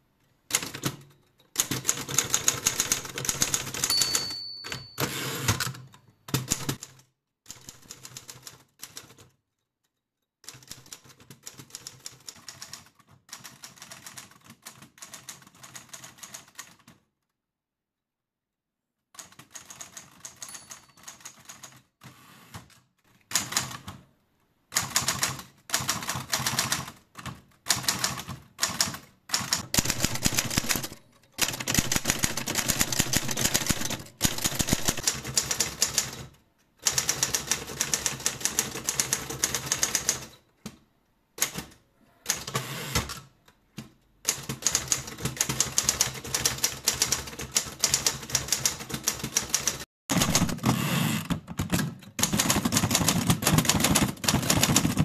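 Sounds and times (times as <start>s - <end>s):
manual typewriter keys clacking: 0.5s - 9.4s, 19.2s - 21.9s, 24.8s - 40.4s, 44.3s - 50.6s, 51.5s - 55.0s
typewriter bell ring: 3.4s - 5.8s, 20.3s - 21.7s, 29.8s - 35.0s.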